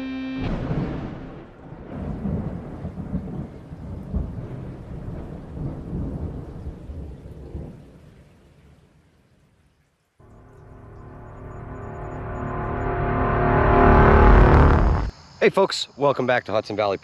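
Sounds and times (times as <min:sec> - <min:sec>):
thunder rumbling: 0:00.5 - 0:08.3, 0:10.2 - 0:15.1
rain hiss: 0:01.7 - 0:12.4.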